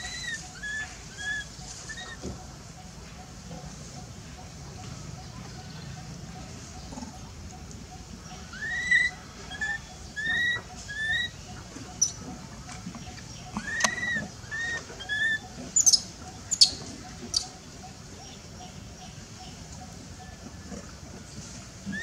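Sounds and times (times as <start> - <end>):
infant monkey crying: 0.0 - 2.2, 8.4 - 12.2, 13.6 - 17.6.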